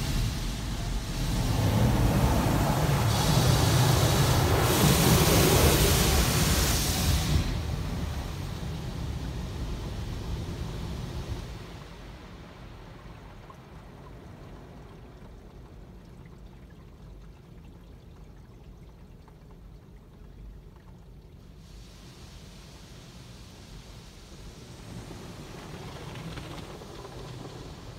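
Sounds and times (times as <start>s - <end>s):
water spraying on windshield: 0.0s - 9.0s.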